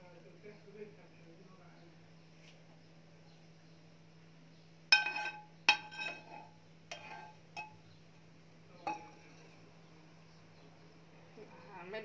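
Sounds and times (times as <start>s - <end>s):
metal spoon clinking on pan: 4.9s - 7.8s, 8.8s - 9.6s.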